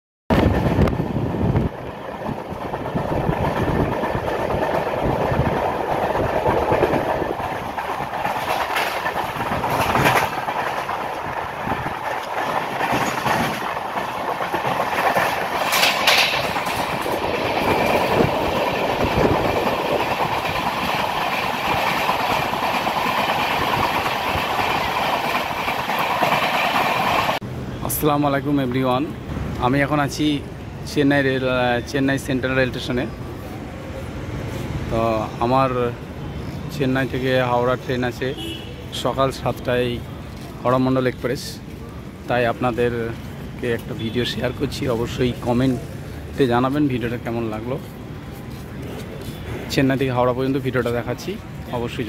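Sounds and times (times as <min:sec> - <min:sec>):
passing electric train: 0:00.3 - 0:52.0
train rumbling rush: 0:00.3 - 0:52.0
wheels clattering over rail joints: 0:00.4 - 0:27.4.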